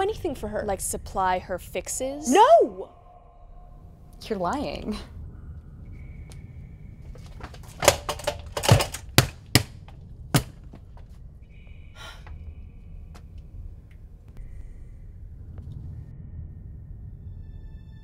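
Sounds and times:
fist pounding on a door: 0:08.6 - 0:10.7.

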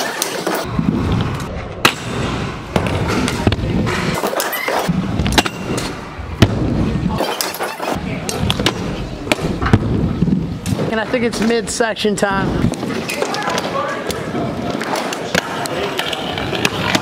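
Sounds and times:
scooter wheels rolling on wood: 0:12.6 - 0:17.0.

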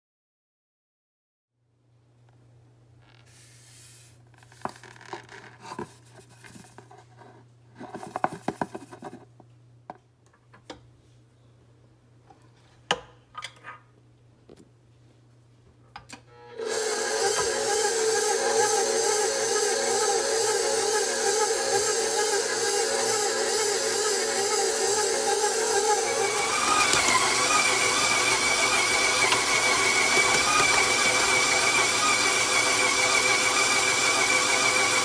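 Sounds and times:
stand mixer humming: 0:16.5 - 0:35.0
butter scraping in steel bowl: 0:19.4 - 0:35.0.

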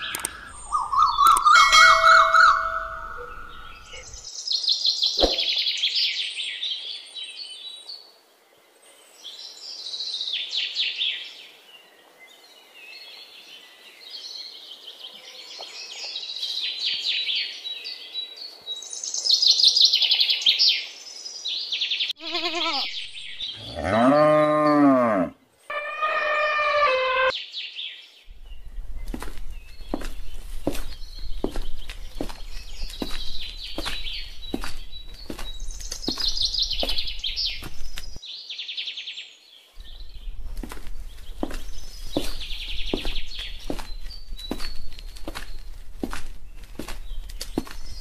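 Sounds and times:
small birds chirping: 0:00.0 - 0:25.3, 0:26.0 - 0:48.0
cow mooing: 0:23.6 - 0:27.3.

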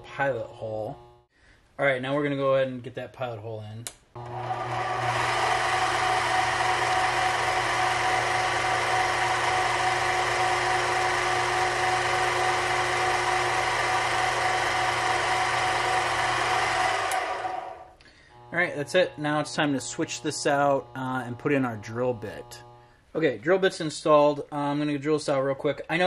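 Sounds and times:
metal lathe whining: 0:04.2 - 0:22.8.

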